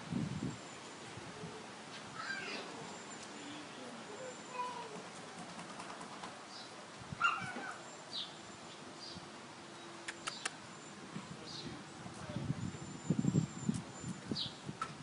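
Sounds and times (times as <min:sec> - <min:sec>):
sharp clicks: 0:10.0 - 0:10.6.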